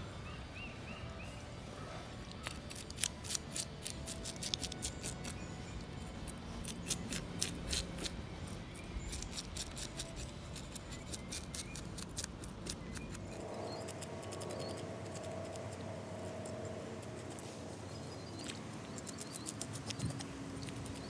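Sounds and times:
knife scraping fish scales: 2.3s - 15.6s.

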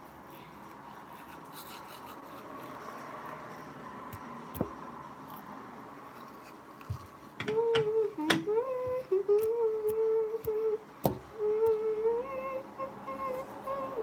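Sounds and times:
toothbrush brushing teeth: 0.3s - 3.8s
girl humming: 7.4s - 14.0s.

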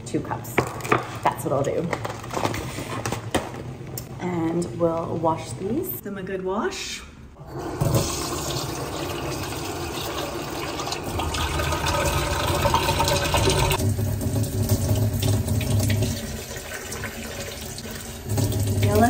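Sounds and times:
tap water running into rice: 7.5s - 19.0s.

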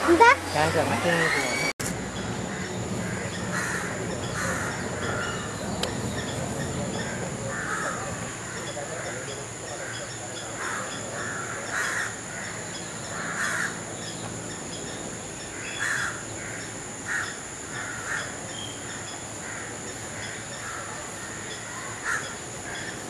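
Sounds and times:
steady high-pitched whine: 0.0s - 23.0s
harsh caw-like bird calls: 1.2s - 14.2s, 15.4s - 23.0s.

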